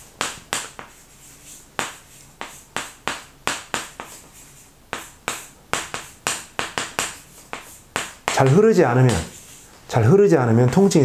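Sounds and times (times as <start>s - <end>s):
chalk tapping and scraping on chalkboard: 0.0s - 11.0s.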